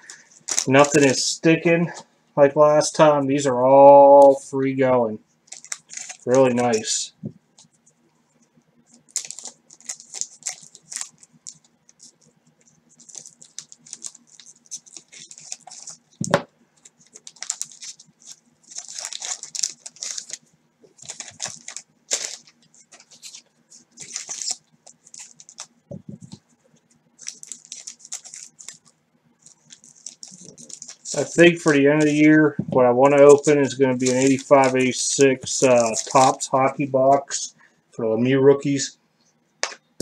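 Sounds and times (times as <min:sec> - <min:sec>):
wax wrapper crinkling: 0:00.0 - 0:01.2, 0:05.4 - 0:07.9, 0:08.8 - 0:37.4
cardboard cards rustling and clicking: 0:05.5 - 0:07.0, 0:08.9 - 0:12.3, 0:13.0 - 0:26.4, 0:27.2 - 0:32.4, 0:33.1 - 0:36.4.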